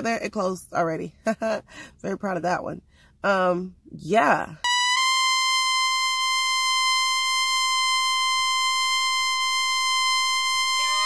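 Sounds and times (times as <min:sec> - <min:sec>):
high electronic beep tone: 0:04.6 - 0:11.0.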